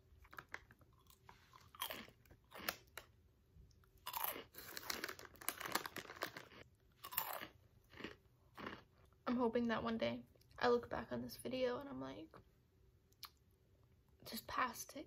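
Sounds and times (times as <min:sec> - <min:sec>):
person chewing crunchy snack: 0:00.2 - 0:09.2.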